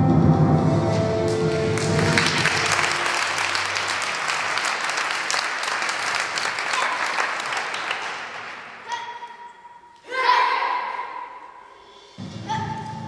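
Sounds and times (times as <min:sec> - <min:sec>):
audience applauding: 0:01.3 - 0:08.8.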